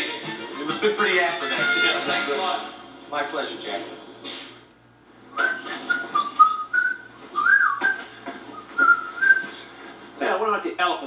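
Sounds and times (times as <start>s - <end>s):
person whistling a tune: 5.4s - 9.6s.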